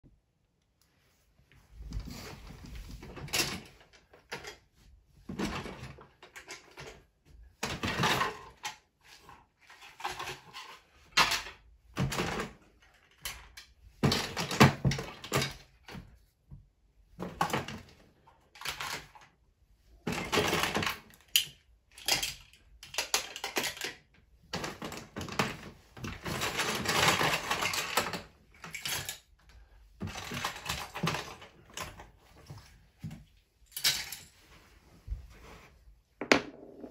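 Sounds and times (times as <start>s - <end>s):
plastic toy parts clattering: 5.4s - 7.0s, 7.6s - 15.7s, 17.2s - 19.3s, 20.1s - 29.4s, 30.0s - 32.1s, 33.7s - 34.4s.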